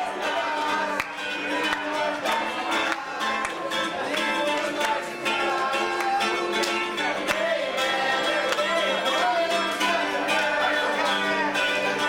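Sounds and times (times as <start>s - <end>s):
group of voices singing: 0.0s - 12.0s
strummed acoustic guitar: 0.0s - 12.0s.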